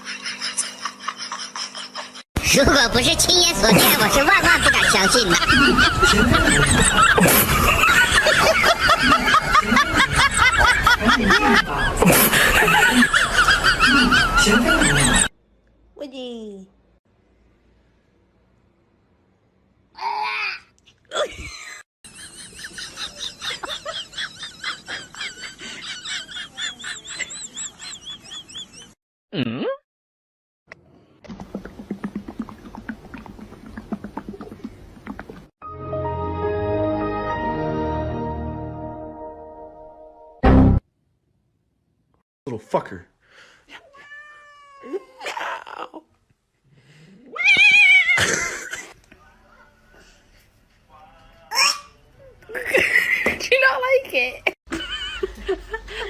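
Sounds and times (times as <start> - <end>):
cat yowling: 43.9 - 45.4, 47.2 - 48.2
cat falling cry: 47.4 - 48.3.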